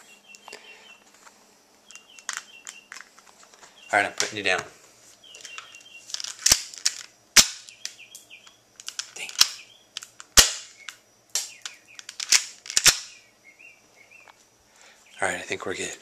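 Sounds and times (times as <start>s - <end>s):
faint bird chirping: 0.0s - 6.3s, 7.2s - 16.0s
airsoft gun clicks and snaps: 5.4s - 13.2s.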